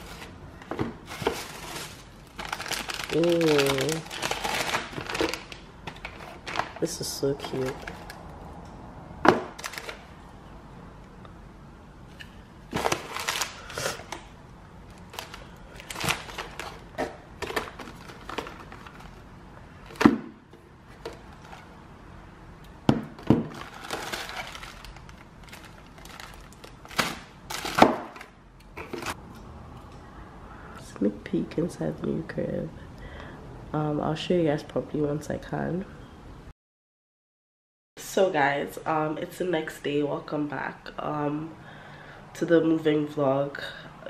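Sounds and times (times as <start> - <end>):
plastic packaging rustling: 0.0 - 8.3, 9.3 - 10.1, 12.7 - 14.2, 14.8 - 20.3, 20.9 - 21.8, 23.1 - 29.2.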